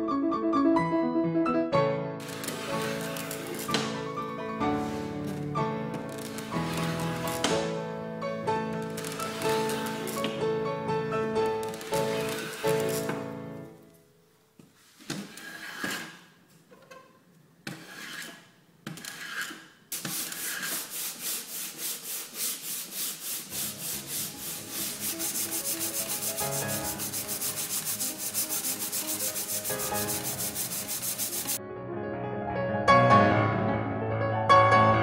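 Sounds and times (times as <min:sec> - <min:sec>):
sandpaper rubbing on wood: 0:02.2 - 0:05.4, 0:06.1 - 0:07.6, 0:09.0 - 0:10.4, 0:11.6 - 0:13.2, 0:15.2 - 0:16.2, 0:17.7 - 0:31.6
hand plane shaving wood: 0:02.2 - 0:05.5, 0:06.1 - 0:07.7, 0:09.0 - 0:10.4, 0:11.6 - 0:13.3, 0:14.8 - 0:16.3, 0:17.7 - 0:31.6.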